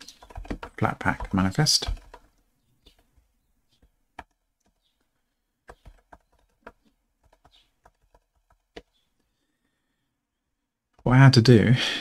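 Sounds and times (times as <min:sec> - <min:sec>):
computer keyboard typing: 0:00.0 - 0:09.0.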